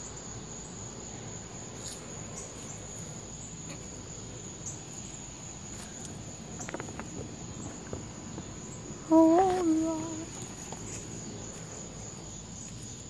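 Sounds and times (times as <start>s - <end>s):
crickets trilling: 0.0s - 13.0s
footsteps rustling through brush: 9.2s - 13.0s.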